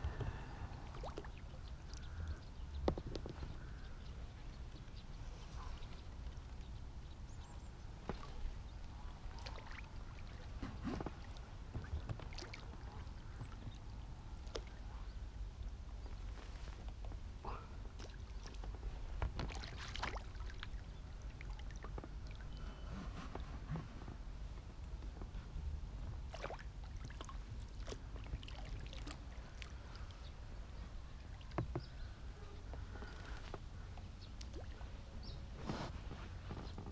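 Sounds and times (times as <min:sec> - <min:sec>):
small water splashes: 0:00.1 - 0:03.7, 0:07.3 - 0:15.1, 0:17.5 - 0:22.6, 0:26.1 - 0:32.2, 0:33.1 - 0:35.3
small sharp ticks and knocks: 0:02.8 - 0:03.8.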